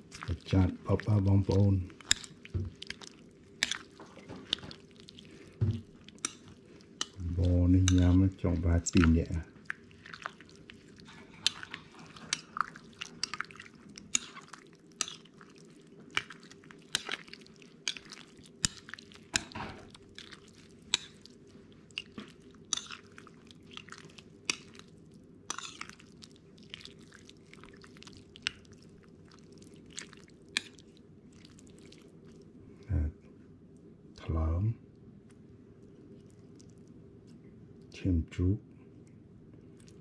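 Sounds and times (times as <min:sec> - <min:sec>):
person chewing and smacking: 0:00.0 - 0:32.6, 0:35.3 - 0:37.9, 0:39.0 - 0:40.0
faint steady hum: 0:00.0 - 0:40.0.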